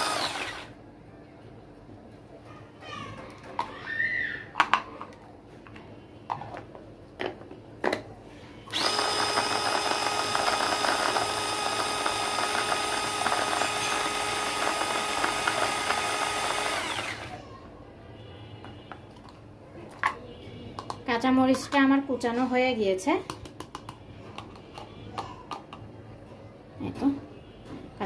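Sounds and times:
electric chopper running: 0.0 - 0.7, 8.7 - 17.4.

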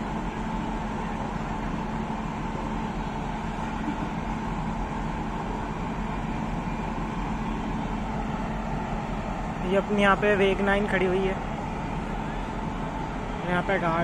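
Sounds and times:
locomotives idling drone: 0.0 - 14.0.

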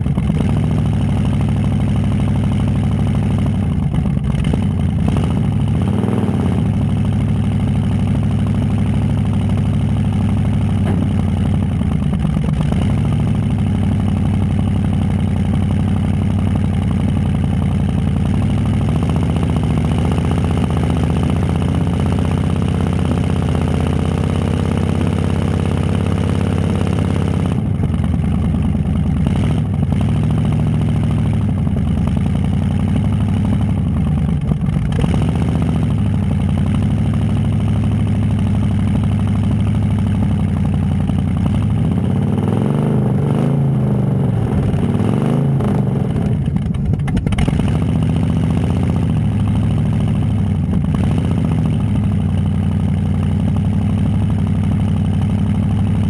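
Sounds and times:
car engine revving: 4.3 - 7.6, 18.6 - 27.8, 34.8 - 36.2, 41.4 - 49.5.

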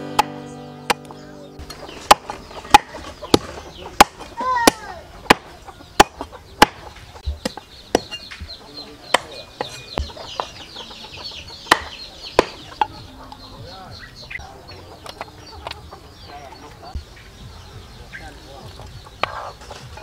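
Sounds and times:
chicken clucking: 0.0 - 20.0
cleaver chopping on wooden board: 0.1 - 8.2, 11.7 - 12.9.

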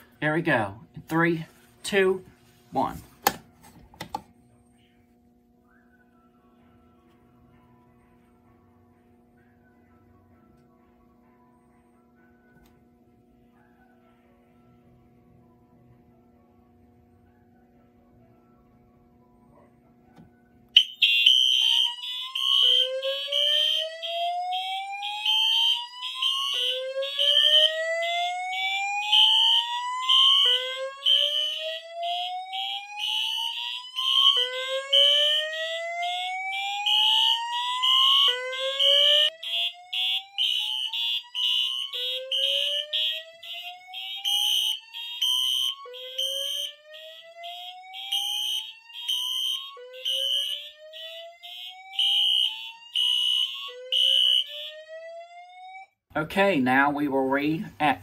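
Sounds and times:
slow-whoop alarm tone: 20.1 - 56.0
alarm horns pulsing: 20.8 - 55.8.

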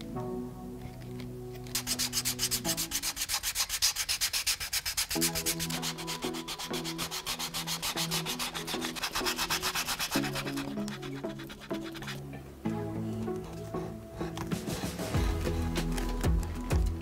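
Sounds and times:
quiet background music: 0.0 - 17.0
hand sanding leather: 1.6 - 12.4.

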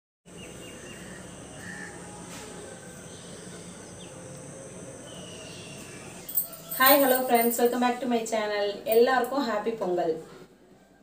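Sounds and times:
faint bird calls: 0.6 - 4.2.

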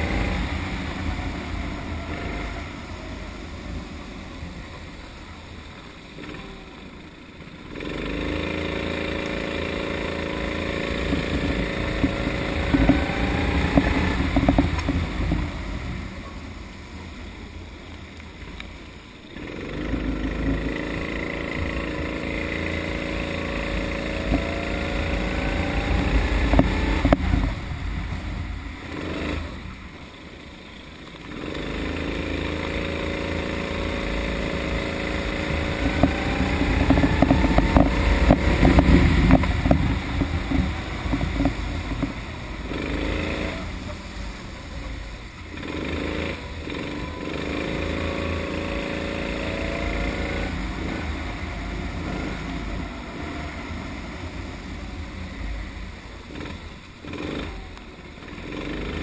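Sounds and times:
kart engine accelerating: 0.0 - 59.0.

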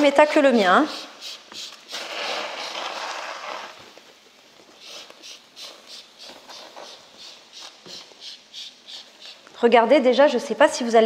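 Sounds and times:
trigger spray bottle squirting: 0.9 - 2.8.

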